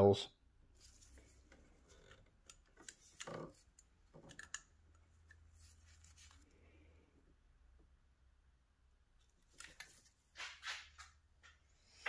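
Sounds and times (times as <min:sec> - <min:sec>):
faint clicks and rustles: 0:00.8 - 0:07.0, 0:09.2 - 0:11.8.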